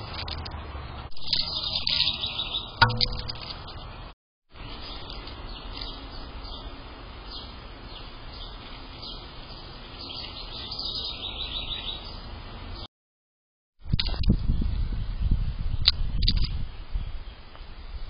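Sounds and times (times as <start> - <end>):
small birds chirping: 0.0 - 12.9.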